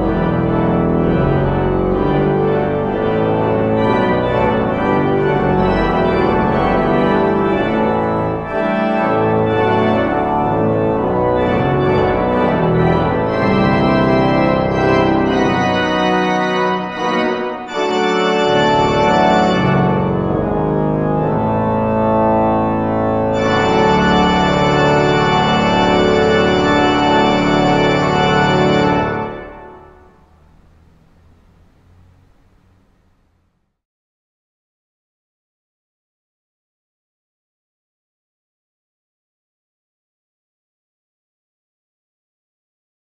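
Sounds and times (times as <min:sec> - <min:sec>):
organ chords: 0:00.0 - 0:33.6.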